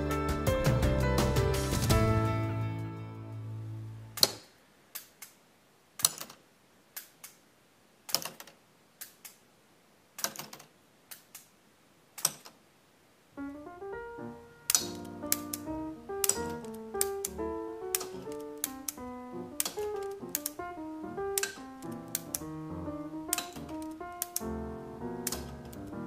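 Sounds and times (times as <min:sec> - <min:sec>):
piano background music: 0:00.0 - 0:04.2, 0:13.4 - 0:26.0
sharp plastic clicks: 0:04.2 - 0:05.4, 0:06.0 - 0:09.5, 0:10.2 - 0:12.6, 0:14.6 - 0:20.7, 0:21.3 - 0:22.5, 0:23.2 - 0:24.6, 0:25.2 - 0:26.0.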